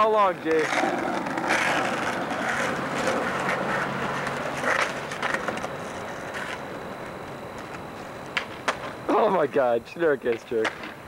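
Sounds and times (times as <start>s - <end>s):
skateboard wheels rolling on asphalt: 0.0s - 11.0s
skateboard scrape: 0.3s - 9.0s.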